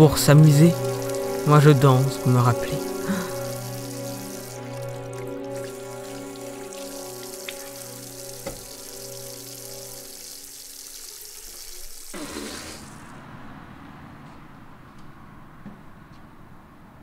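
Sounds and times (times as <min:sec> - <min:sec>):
low musical drone: 0:00.0 - 0:10.5
faucet running into sink: 0:00.1 - 0:13.0.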